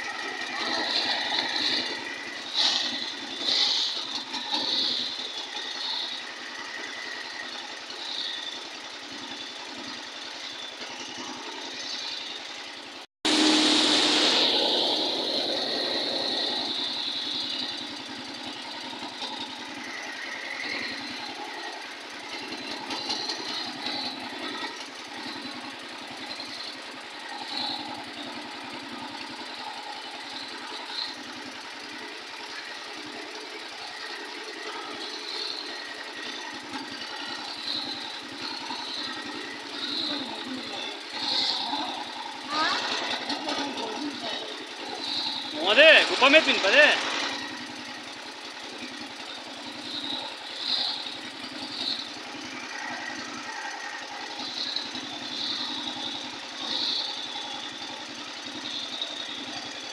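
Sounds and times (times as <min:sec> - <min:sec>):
boat motor running: 0:11.1 - 0:59.5
jet ski passing: 0:13.3 - 0:16.7.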